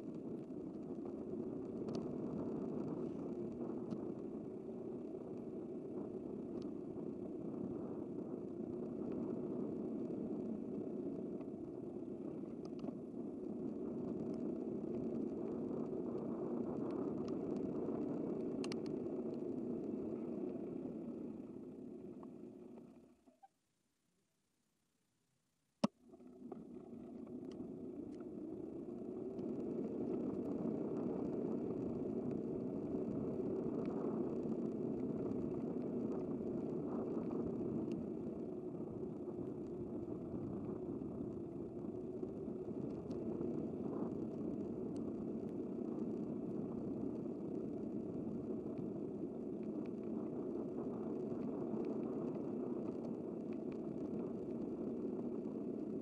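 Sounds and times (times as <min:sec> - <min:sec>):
bicycle road and wind noise: 0:00.0 - 0:23.5, 0:26.4 - 0:56.0.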